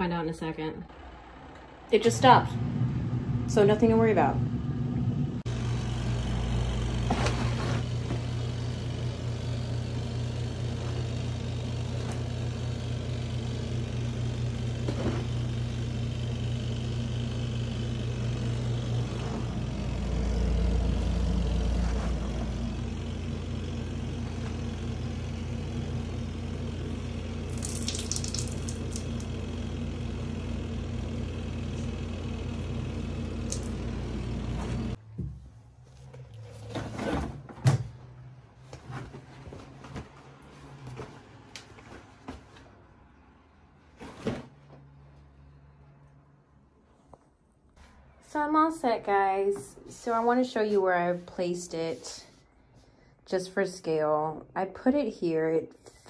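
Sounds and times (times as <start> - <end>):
washing machine motor hum: 0.0 - 43.6
heavy low rumble: 0.9 - 7.9, 17.5 - 27.5.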